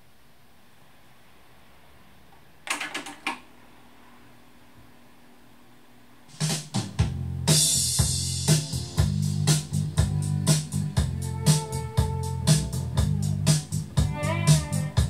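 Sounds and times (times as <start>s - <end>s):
tape hiss: 3.4s - 15.0s
rock song with drums and guitar: 6.3s - 15.0s.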